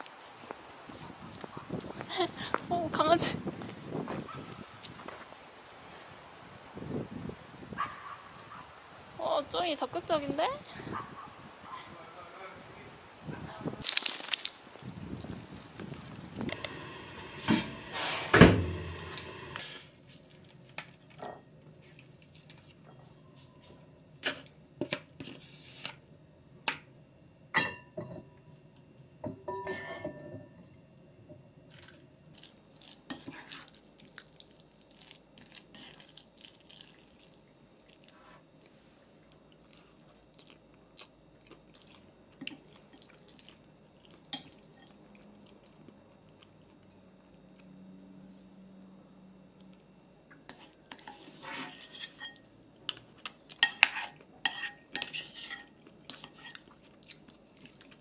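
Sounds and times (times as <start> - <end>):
ceramic bowls clinking: 29.3 - 30.6.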